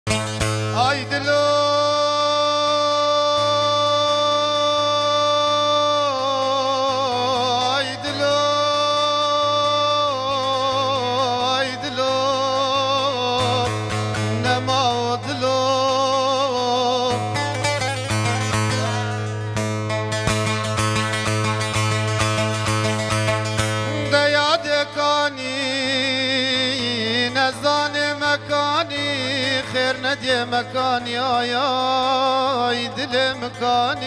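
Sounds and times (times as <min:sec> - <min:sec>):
long-necked lute plucks: 0:00.1 - 0:34.0
man singing long held notes: 0:00.7 - 0:19.3, 0:23.8 - 0:34.0.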